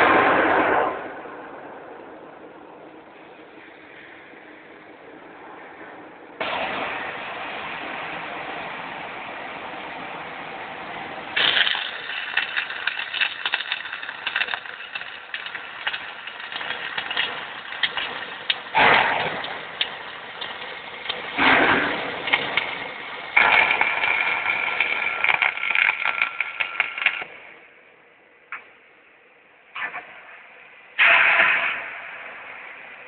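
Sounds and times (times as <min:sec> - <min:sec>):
welding arc hissing and crackling: 0:06.4 - 0:27.7, 0:31.0 - 0:33.0
spatter pops: 0:11.4 - 0:27.4.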